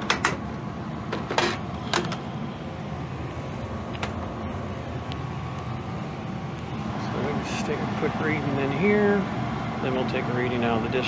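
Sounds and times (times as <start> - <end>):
clicks and taps on sheet metal: 0.0 - 0.4.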